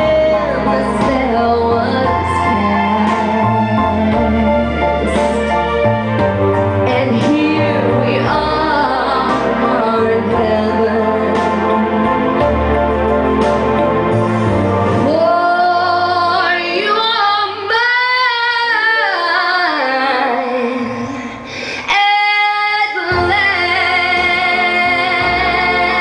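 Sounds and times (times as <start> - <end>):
woman singing soul ballad: 0.0 - 5.5, 6.8 - 12.1, 15.0 - 26.0
karaoke backing track: 0.0 - 26.0.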